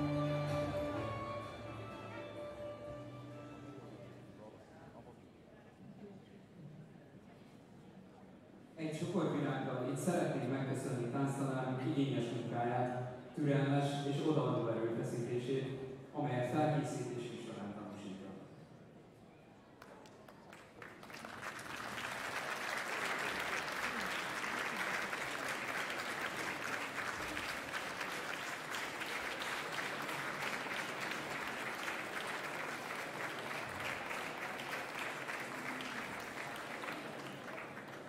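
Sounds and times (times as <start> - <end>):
audience applauding: 19.8 - 38.0.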